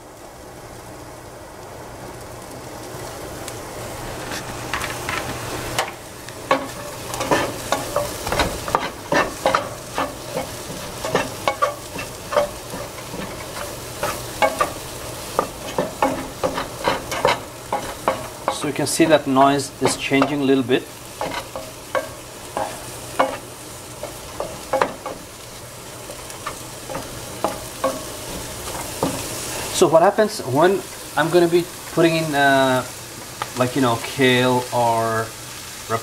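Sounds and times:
mushrooms sizzling in frying pan: 0:00.0 - 0:36.0
vent fan hum: 0:00.0 - 0:36.0
wooden spatula scraping a pan: 0:04.2 - 0:23.4.

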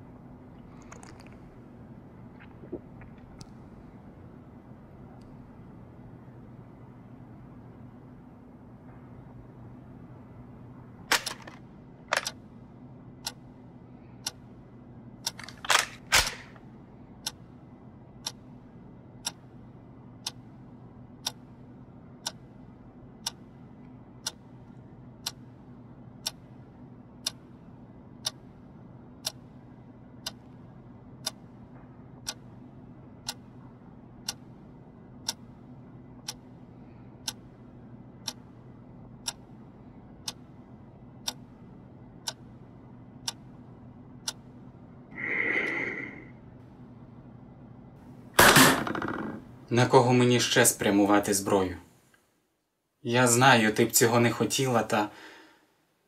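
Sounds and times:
low steady hum: 0:00.0 - 0:56.0
clock ticking: 0:11.1 - 0:12.4, 0:13.2 - 0:13.5, 0:15.2 - 0:16.4, 0:17.2 - 0:17.6, 0:18.2 - 0:44.7.

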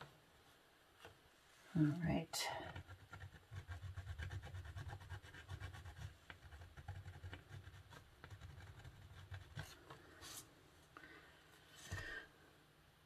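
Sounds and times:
pencil scratching on paper: 0:02.5 - 0:10.5.

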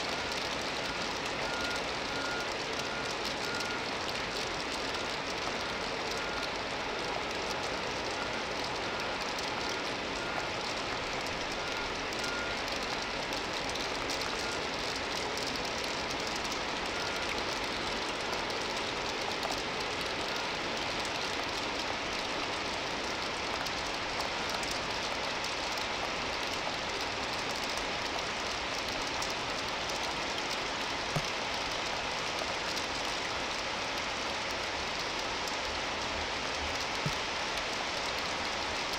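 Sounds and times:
heavy rain pouring: 0:00.0 - 0:38.9
vehicle backup beeper: 0:00.1 - 0:18.1, 0:20.2 - 0:20.6.

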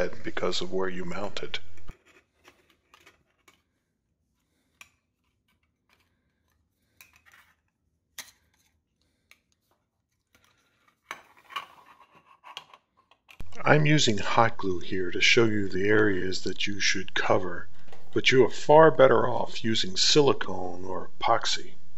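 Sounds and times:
handling noises: 0:01.2 - 0:13.6.

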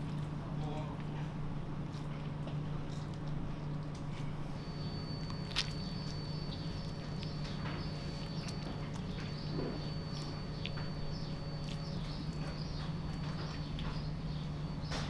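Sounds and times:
steady low hum: 0:00.0 - 0:15.0
thin high whine: 0:04.3 - 0:15.0
wet squishes of raw meat: 0:05.2 - 0:14.0.

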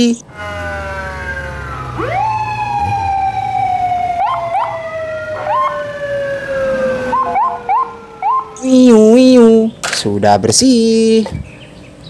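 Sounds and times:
siren chirps: 0:00.2 - 0:09.2
police siren wailing: 0:00.2 - 0:09.5
siren whoops: 0:00.3 - 0:08.9.

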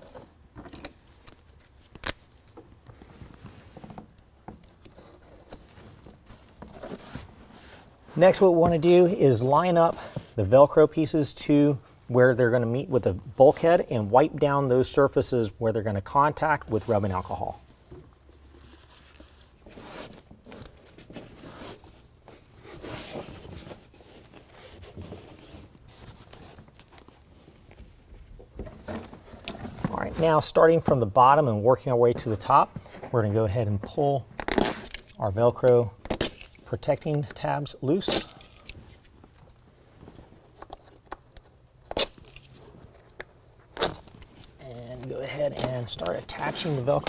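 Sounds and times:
velcro tabs ripping: 0:34.4 - 0:35.2, 0:36.0 - 0:36.6, 0:41.8 - 0:42.6, 0:43.7 - 0:44.2.

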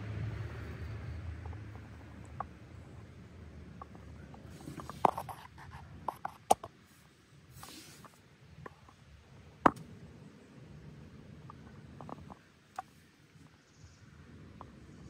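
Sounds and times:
handling clicks and knocks: 0:11.4 - 0:13.0.

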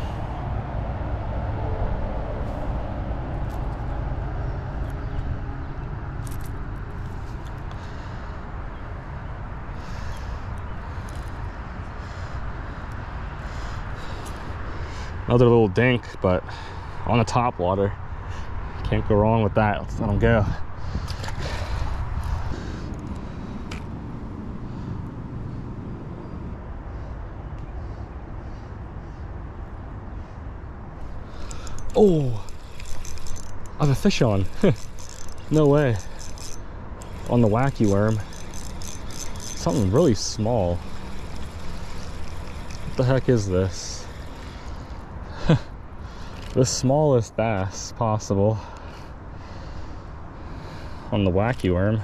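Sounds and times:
wind noise on microphone: 0:19.9 - 0:24.6
fishing lure clicks: 0:31.4 - 0:39.8, 0:40.8 - 0:42.9.

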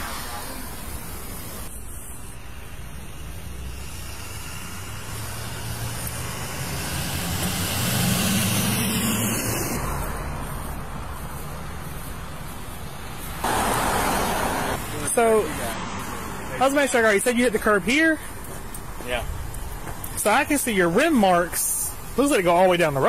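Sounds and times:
road traffic passing: 0:00.0 - 0:23.0
truck driving by: 0:00.0 - 0:23.0.

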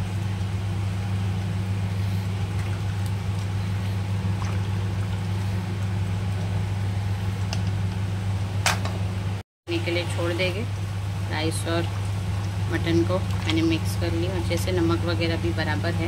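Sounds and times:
low hum: 0:00.0 - 0:16.0
broth bubbling: 0:01.3 - 0:07.4, 0:10.5 - 0:15.8.

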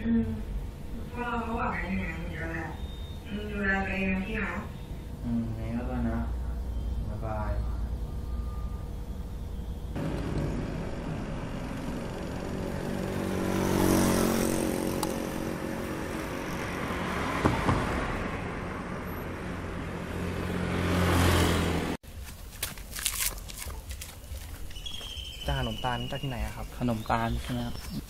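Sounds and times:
motor vehicles passing: 0:00.0 - 0:22.0.

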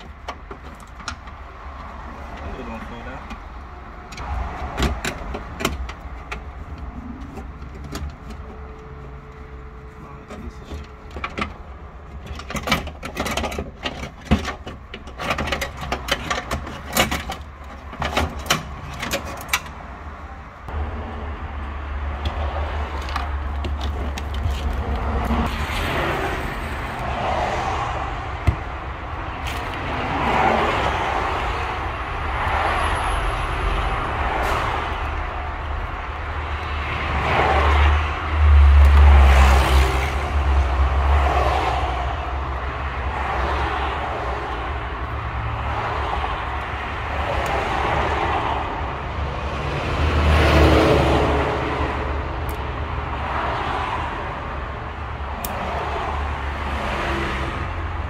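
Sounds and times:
tools and parts clicking and rattling: 0:00.0 - 0:09.5, 0:10.2 - 0:19.9, 0:22.2 - 0:25.5.

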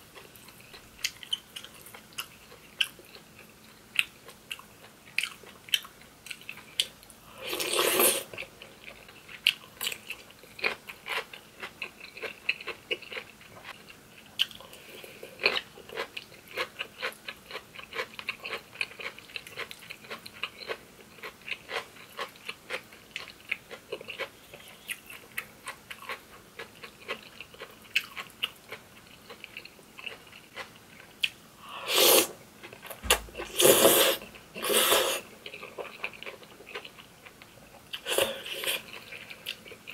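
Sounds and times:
loud noodle slurps: 0:07.4 - 0:08.3, 0:31.8 - 0:32.4, 0:33.4 - 0:35.3.

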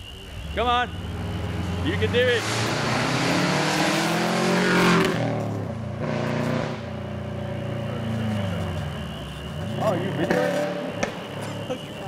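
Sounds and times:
rally car engine revving past: 0:01.0 - 0:07.2.

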